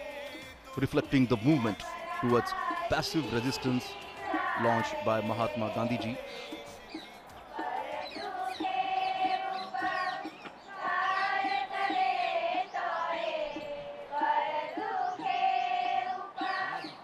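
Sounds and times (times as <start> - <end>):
person chanting held notes: 0.0 - 17.0.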